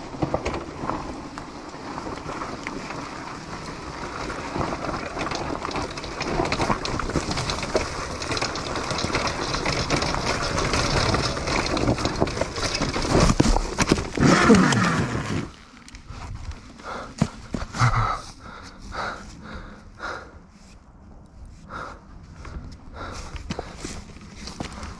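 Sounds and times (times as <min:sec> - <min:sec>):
tyres rolling over leaves and dirt: 0:00.0 - 0:19.8, 0:22.1 - 0:24.9
small knocks and rattles: 0:04.4 - 0:14.8.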